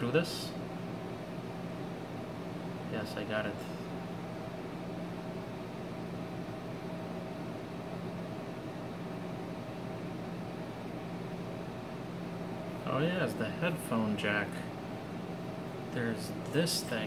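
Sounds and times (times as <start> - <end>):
room hum and hiss: 0.0 - 17.0.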